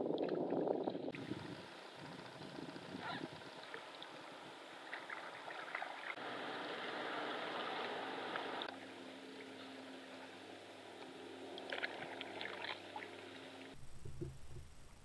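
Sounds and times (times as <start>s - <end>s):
rushing water: 0.0s - 14.6s
water trickling and dripping: 3.4s - 14.6s.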